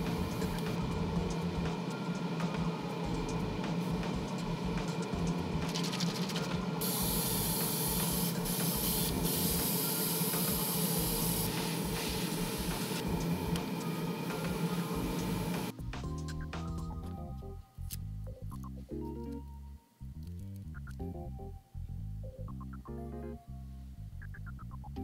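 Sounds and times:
low motor hum: 0.0 - 9.6, 10.6 - 18.8
airbrush spraying hiss: 5.7 - 15.7.

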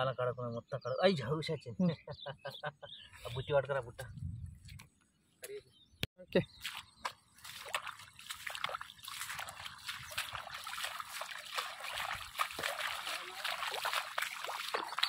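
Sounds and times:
footsteps splashing through water: 6.5 - 15.0.

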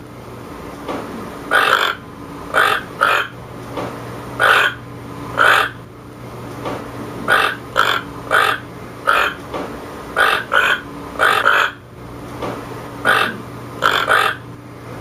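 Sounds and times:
toucan harsh calls: 1.5 - 3.4, 4.4 - 4.8, 5.4 - 5.8, 7.3 - 9.4, 10.1 - 11.8, 13.0 - 14.5.

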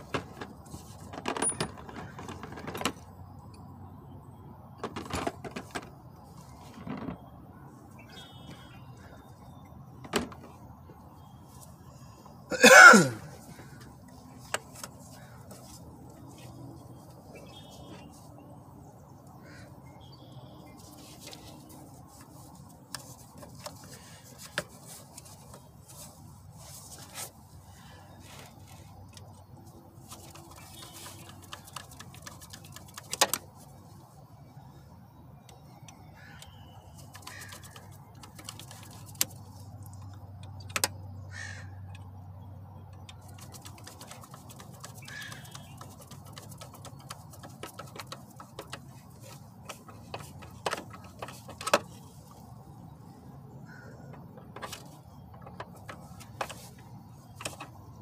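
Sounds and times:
sharp clicks and knocks: 30.1 - 33.6, 42.9 - 52.4, 54.1 - 58.0
crows cawing: 37.2 - 37.8, 41.3 - 41.9, 53.6 - 54.1.

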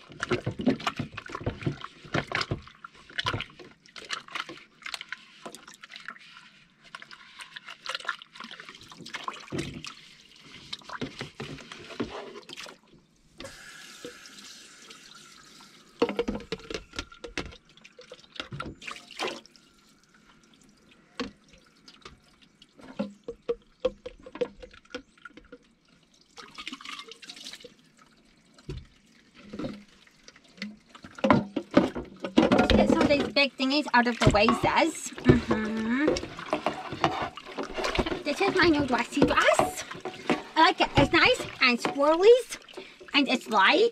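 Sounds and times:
tap water running and splashing: 0.0 - 43.9
dishes and cups clinking: 34.2 - 42.3.

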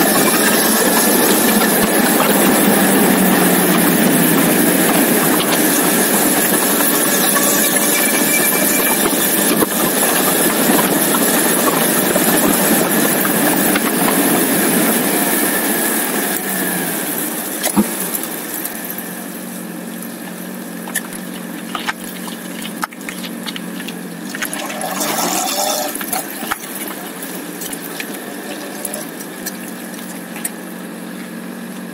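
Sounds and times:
wind and road noise rushing: 0.0 - 24.7
motorcycle engine running: 0.0 - 31.9.

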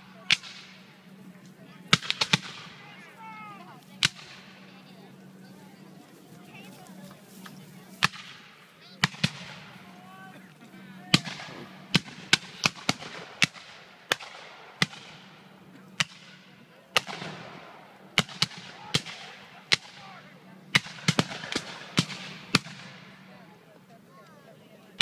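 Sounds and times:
rifle shots with rolling echo: 0.0 - 1.2, 1.8 - 3.1, 4.0 - 5.4, 7.9 - 9.9, 11.1 - 23.3.

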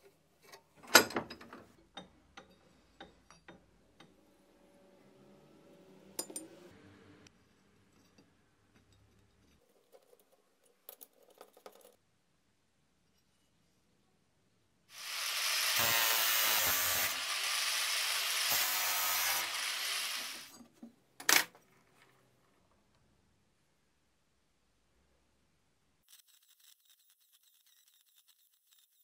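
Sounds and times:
power tool running: 14.9 - 20.5.

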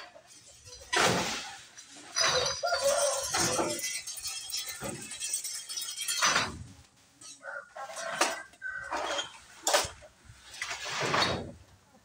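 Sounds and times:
glass bottles clinking in crates: 0.0 - 7.4.

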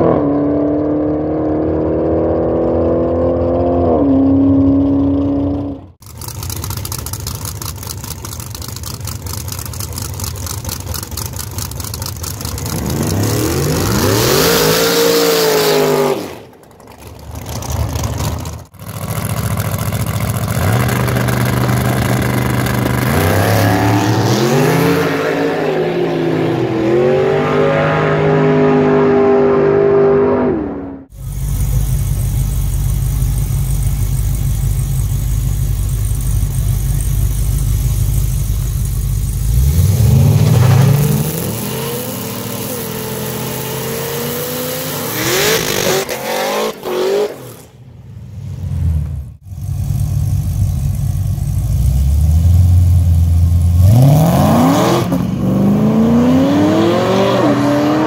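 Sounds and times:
low engine rumble: 1.1 - 13.8, 31.0 - 40.4, 48.0 - 53.8
racing car engines accelerating: 20.4 - 31.1, 53.8 - 58.0.

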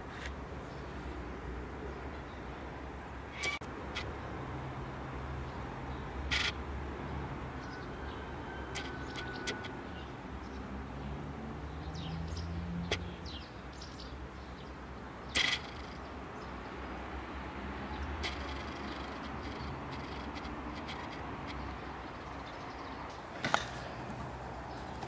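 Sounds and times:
faint bird chirps: 15.3 - 16.5, 17.9 - 23.0
sharp clicks: 18.2 - 21.8.

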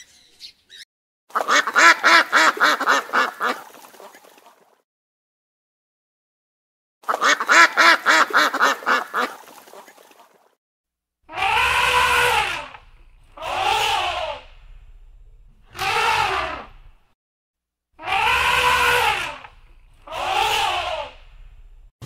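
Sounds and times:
animal calling: 11.3 - 17.0, 18.0 - 21.8
low rumble: 12.8 - 15.8, 16.6 - 17.1, 21.2 - 21.9.

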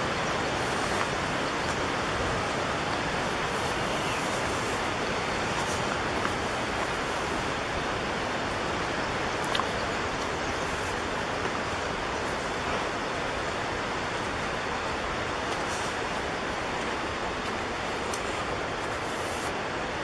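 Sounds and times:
rushing water: 0.0 - 20.0.

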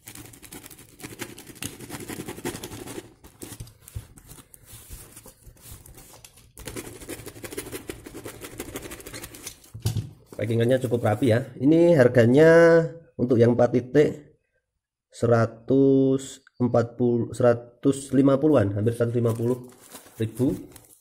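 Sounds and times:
plastic crinkling: 19.2 - 21.0.

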